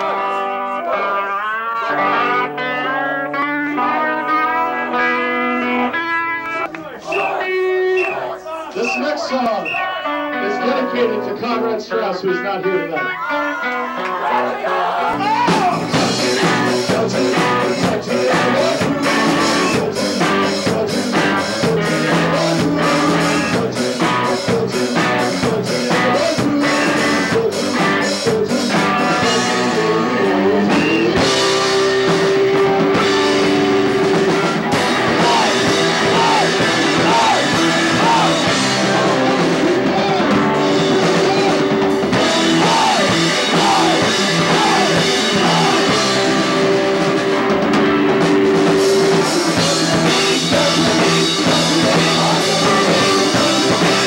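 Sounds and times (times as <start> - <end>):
rock band playing live: 0.0 - 8.4, 9.0 - 54.0
person singing: 12.5 - 33.5, 34.1 - 47.0, 48.7 - 54.0
drum beat: 15.2 - 29.3, 30.8 - 54.0.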